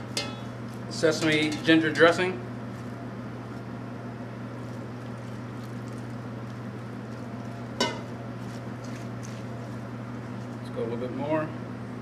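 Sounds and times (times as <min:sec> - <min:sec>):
steady low hum: 0:00.0 - 0:12.0
dressing pouring: 0:04.6 - 0:07.8.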